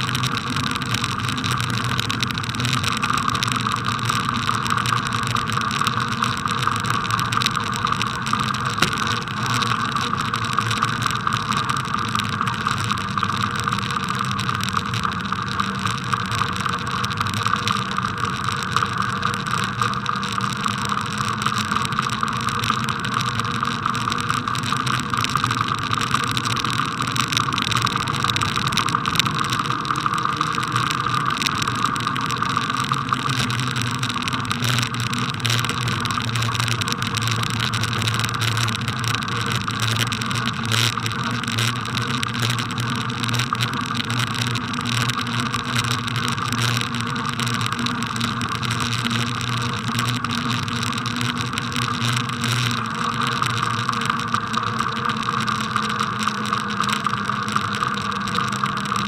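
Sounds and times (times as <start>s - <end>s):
bicycle tyres rumbling on snow: 2.5s - 11.7s.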